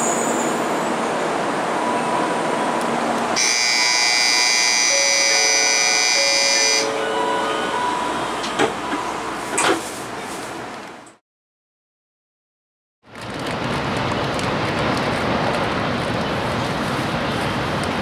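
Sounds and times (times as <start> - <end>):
platform departure buzzer: 3.4 - 8.0.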